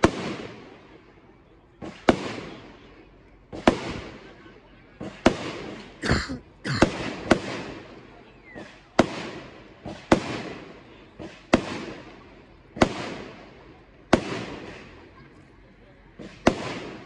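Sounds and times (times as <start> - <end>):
firework bangs with hiss: 0.0 - 1.0, 1.8 - 4.4, 5.0 - 6.0, 6.8 - 15.2, 16.2 - 17.0.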